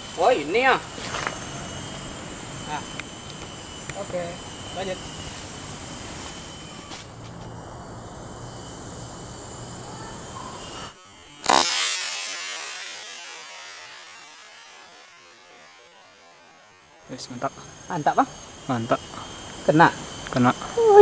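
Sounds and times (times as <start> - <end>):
insects buzzing: 0.0 - 21.0
sharp loud crack: 11.4 - 15.7.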